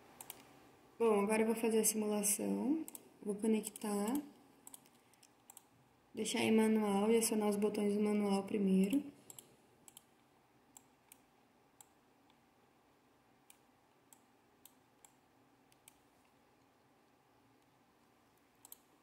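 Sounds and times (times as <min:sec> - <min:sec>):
faint computer clicks: 0:00.2 - 0:00.5, 0:03.7 - 0:05.7, 0:08.8 - 0:12.4, 0:18.6 - 0:19.0.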